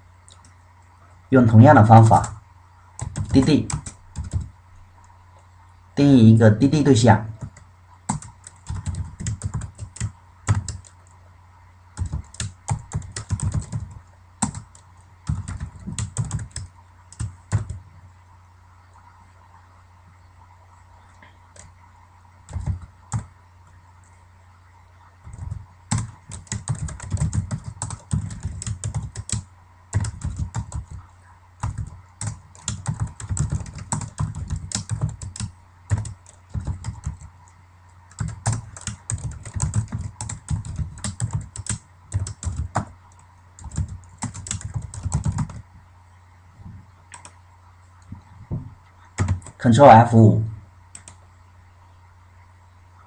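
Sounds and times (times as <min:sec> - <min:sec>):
steady low hum: 0:00.0 - 0:53.0
computer keyboard typing: 0:03.0 - 0:04.5, 0:07.4 - 0:11.2, 0:12.0 - 0:17.8, 0:22.5 - 0:23.3, 0:25.2 - 0:37.4, 0:38.1 - 0:45.6, 0:47.1 - 0:47.4, 0:49.2 - 0:49.6, 0:50.9 - 0:51.2.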